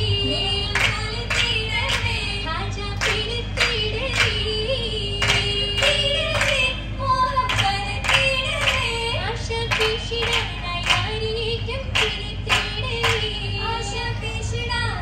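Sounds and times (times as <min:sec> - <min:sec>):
women singing: 0:00.0 - 0:15.0
hand claps in time: 0:00.8 - 0:02.1, 0:03.0 - 0:04.5, 0:05.2 - 0:06.7, 0:07.5 - 0:08.9, 0:09.7 - 0:11.2, 0:11.9 - 0:13.4.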